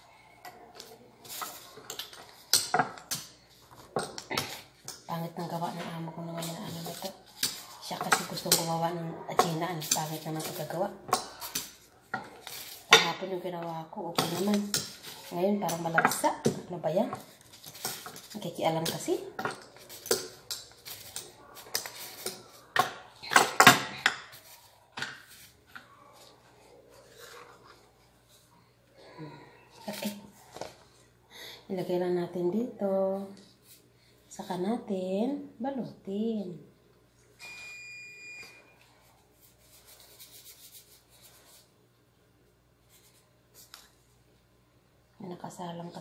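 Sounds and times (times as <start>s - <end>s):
gloved hands rustling dough: 1.0s - 23.2s, 24.2s - 28.5s, 38.8s - 44.3s
oven timer beep: 37.4s - 38.8s.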